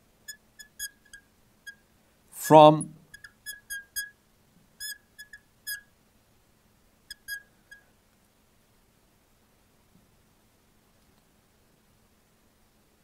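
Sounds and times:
marker squeaking on glass: 0.3s - 1.8s, 3.1s - 4.2s, 4.8s - 5.9s, 7.1s - 7.8s.

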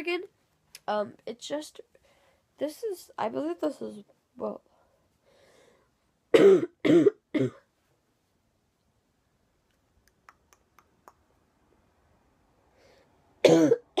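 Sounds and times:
girl coughing: 6.3s - 7.7s, 13.4s - 14.0s.

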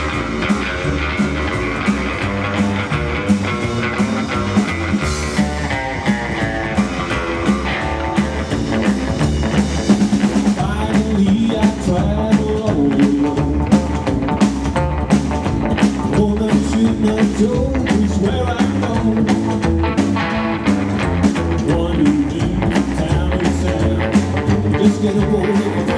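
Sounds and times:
drum kit beat: 0.0s - 25.9s
electric guitar: 0.0s - 25.9s
upright double bass: 0.0s - 25.9s.

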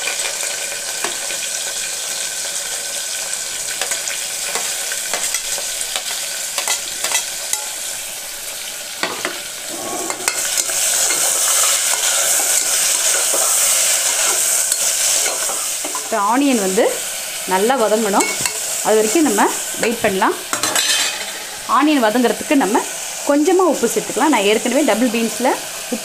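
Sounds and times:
onions sizzling in hot oil: 0.0s - 26.0s
steel spoon scraping a plate: 9.0s - 16.0s.

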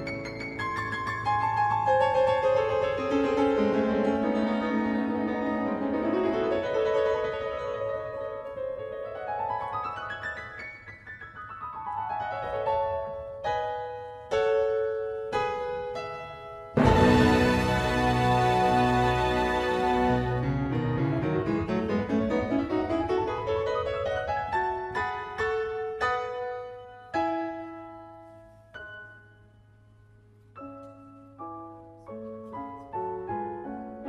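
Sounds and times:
piano music: 0.0s - 34.0s.

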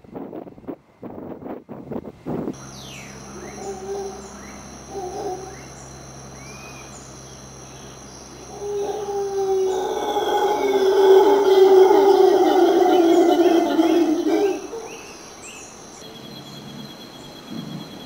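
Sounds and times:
high insect drone: 2.5s - 18.0s
howler monkeys roaring: 2.7s - 16.0s.

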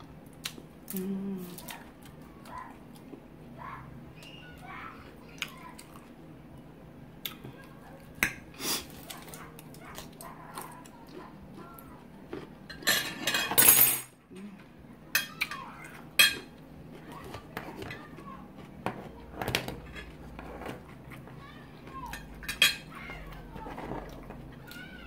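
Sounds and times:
chewing: 0.3s - 3.2s, 5.3s - 6.2s, 8.8s - 12.8s.

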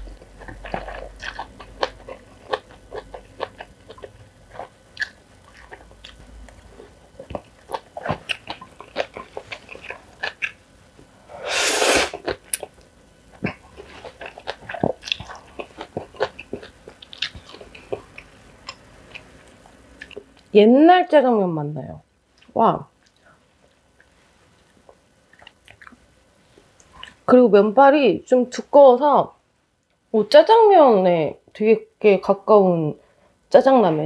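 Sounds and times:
mouth smacking and chewing: 0.0s - 10.6s, 12.1s - 20.5s, 24.0s - 26.0s.

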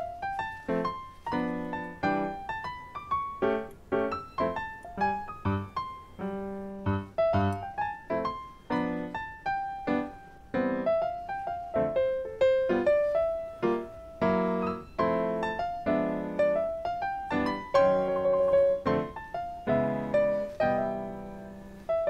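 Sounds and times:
light piano tune: 0.0s - 22.0s.

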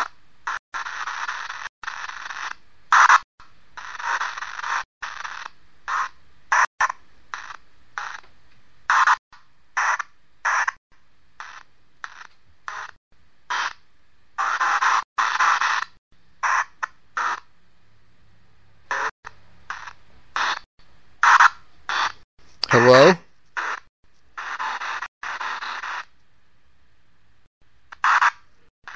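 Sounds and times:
radio static bursts: 0.0s - 3.2s, 8.9s - 9.2s, 9.8s - 10.8s, 11.4s - 13.8s, 14.4s - 17.5s, 18.9s - 19.1s, 19.7s - 26.1s, 28.0s - 28.9s.

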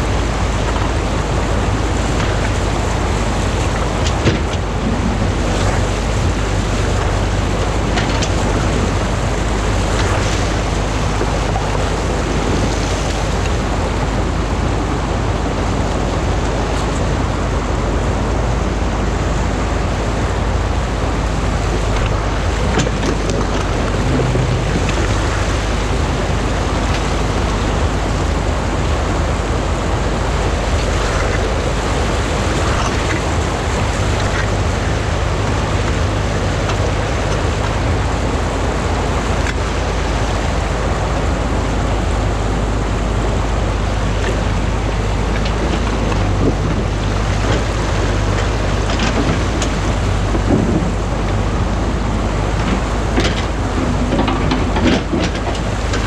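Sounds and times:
excavator engine idling: 0.0s - 56.0s
water rushing over a weir: 0.0s - 56.0s.

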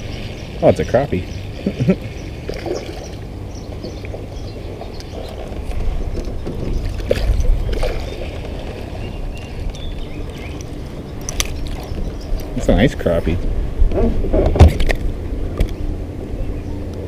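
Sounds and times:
light water splashing: 0.0s - 12.7s
wind rumble: 1.3s - 17.0s
microphone handling noise: 13.4s - 15.8s.

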